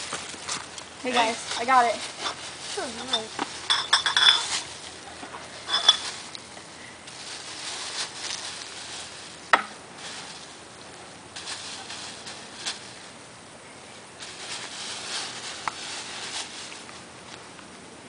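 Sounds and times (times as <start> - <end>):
plastic bag rustling: 0.0 - 13.2, 14.2 - 17.4
small hard objects clinking: 0.3 - 6.5.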